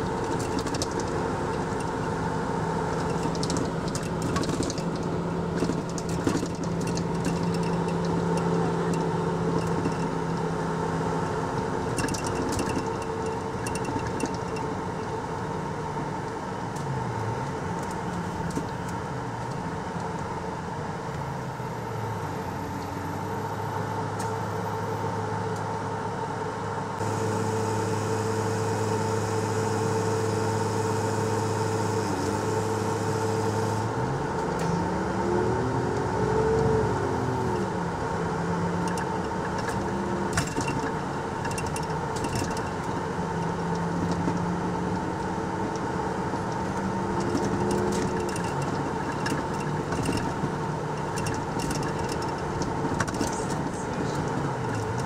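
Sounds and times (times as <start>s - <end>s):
bus diesel engine: 0.0s - 55.0s
air compressor whine: 26.1s - 35.4s.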